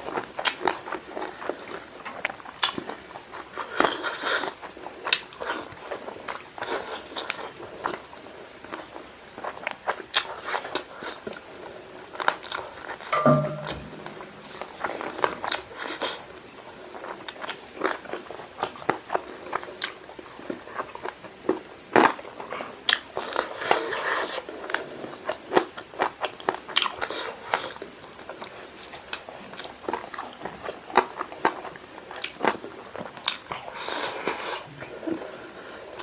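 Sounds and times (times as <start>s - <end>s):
wet biting and chewing: 9.9s - 11.4s.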